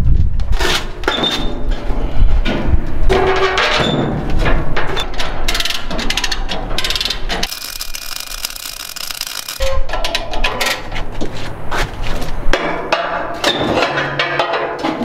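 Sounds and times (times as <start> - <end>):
welding arc hissing and crackling: 7.4 - 9.7
steel clanking and knocking: 12.5 - 15.0.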